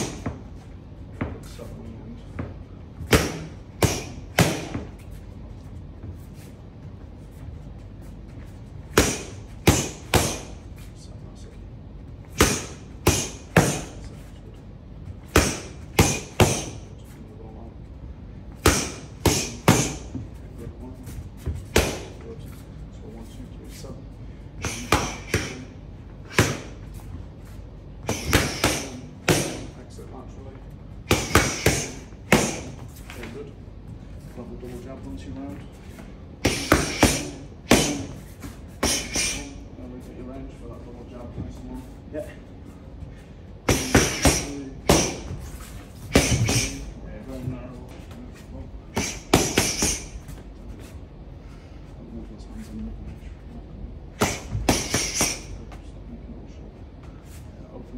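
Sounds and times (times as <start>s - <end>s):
punches hitting focus mitts: 0.0s - 0.5s, 2.4s - 5.0s, 8.8s - 10.6s, 12.3s - 14.1s, 15.2s - 16.9s, 18.5s - 20.2s, 21.4s - 22.3s, 24.6s - 26.8s, 28.0s - 29.8s, 31.1s - 33.3s, 36.4s - 38.2s, 38.8s - 39.5s, 43.6s - 45.4s, 46.0s - 46.9s, 48.9s - 50.2s, 54.2s - 55.6s
punches smacking focus mitts: 48.9s - 50.1s, 54.2s - 55.5s.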